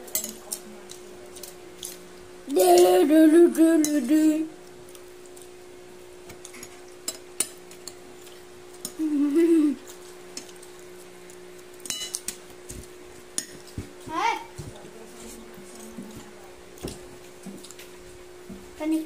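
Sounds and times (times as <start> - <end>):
cutlery clinking on plates: 0.1 - 2.0, 11.8 - 12.4.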